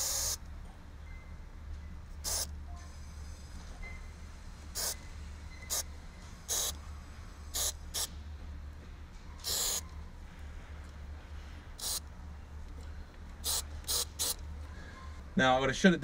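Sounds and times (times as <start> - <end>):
aerosol can hissing squirts: 6.5 - 6.7, 7.6 - 8.1, 9.4 - 9.8, 11.8 - 12.0, 13.4 - 14.4.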